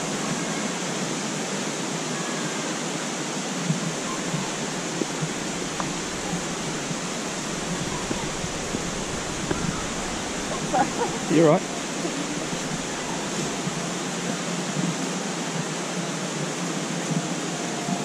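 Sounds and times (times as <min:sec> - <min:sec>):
stream rushing: 0:00.0 - 0:18.0
footsteps on rocks: 0:04.0 - 0:13.9.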